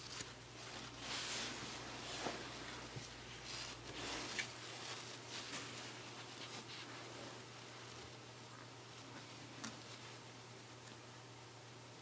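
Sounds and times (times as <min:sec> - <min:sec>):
rustling of fabric: 0:00.0 - 0:10.4.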